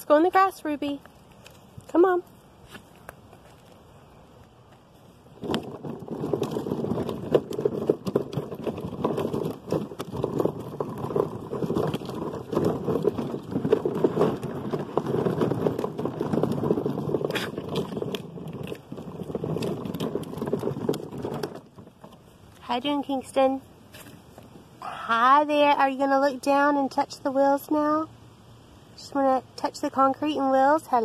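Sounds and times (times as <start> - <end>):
plastic wheels rattling on concrete: 5.2 - 24.1.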